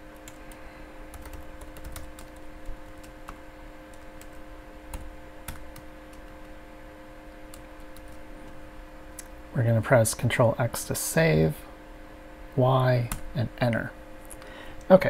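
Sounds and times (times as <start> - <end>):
faint steady hum: 0.0 - 15.0
computer keyboard typing: 1.1 - 6.5, 7.5 - 8.2.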